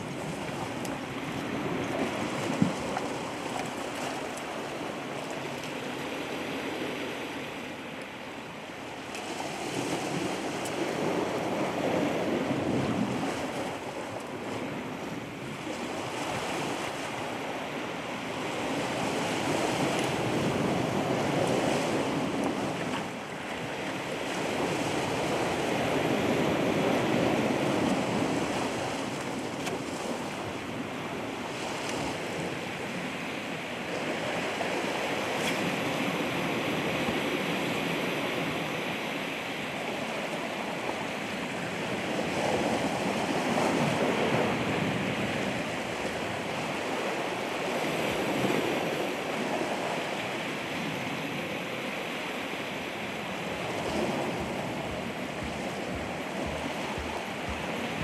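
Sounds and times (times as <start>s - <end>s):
ocean waves washing onto shore: 0.0s - 58.0s
wind buffeting microphone: 52.9s - 58.0s.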